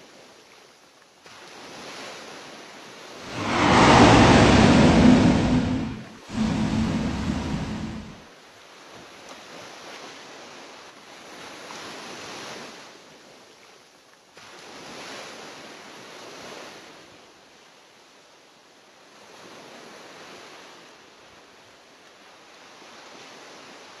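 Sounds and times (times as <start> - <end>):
sea water rushing and splashing: 3.3 - 8.2.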